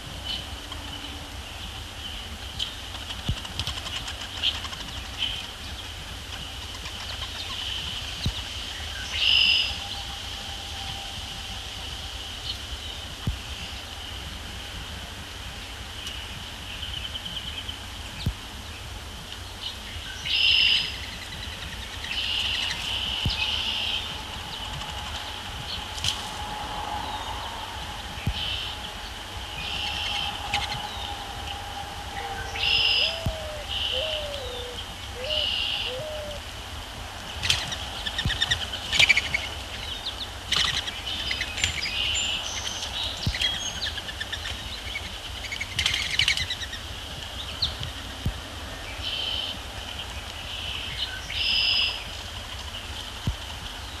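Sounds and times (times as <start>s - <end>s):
wild birds calling and singing: 15.6s - 36.5s, 37.2s - 48.2s.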